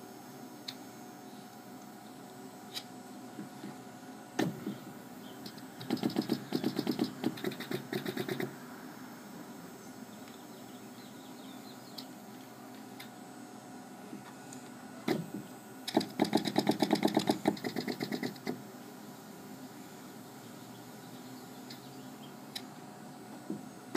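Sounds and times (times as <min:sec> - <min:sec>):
motor hum: 0:00.0 - 0:23.9
pneumatic clicks and knocks: 0:04.4 - 0:08.5, 0:15.0 - 0:18.6.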